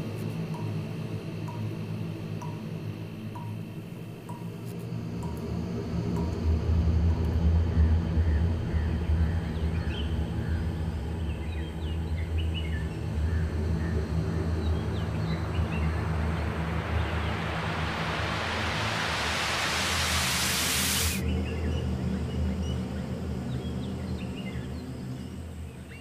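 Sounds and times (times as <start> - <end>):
low drone: 0.0 - 26.0
rising whoosh riser: 14.6 - 21.2.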